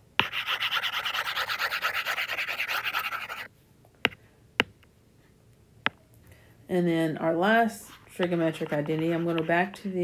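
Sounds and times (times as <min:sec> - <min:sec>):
stylus scrubbing on glass screen: 0:00.2 - 0:03.5, 0:07.9 - 0:09.9.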